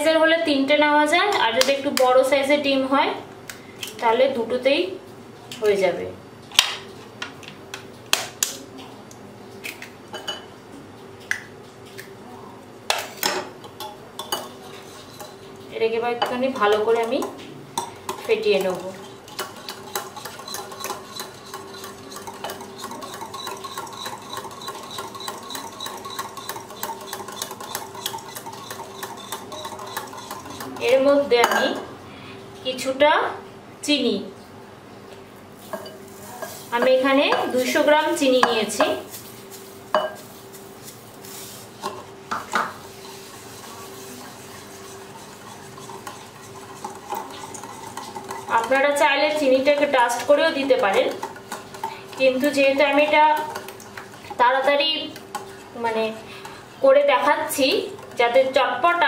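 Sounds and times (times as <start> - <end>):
whisk stirring in glass bowl: 14.3 - 15.6, 16.5 - 31.0, 38.4 - 55.8
whisk clicking against glass bowl: 18.1 - 30.9.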